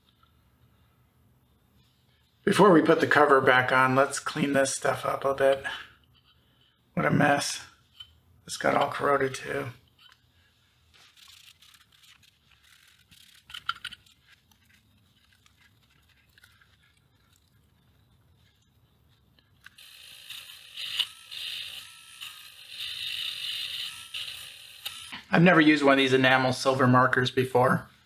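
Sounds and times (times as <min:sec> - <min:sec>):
rotary tool grinding metal: 0:11.1 - 0:14.1, 0:19.7 - 0:25.2.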